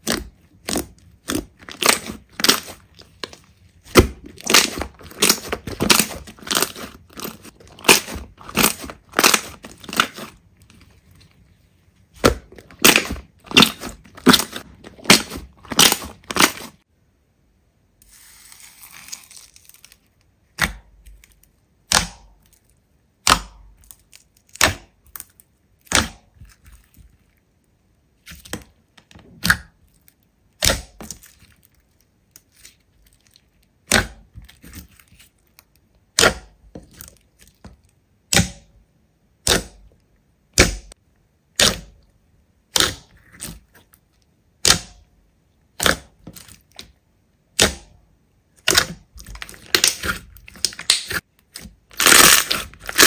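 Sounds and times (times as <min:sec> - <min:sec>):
slime popping and crackling: 0:00.0 - 0:10.4, 0:12.2 - 0:16.8, 0:42.7 - 0:43.8, 0:48.6 - 0:53.0.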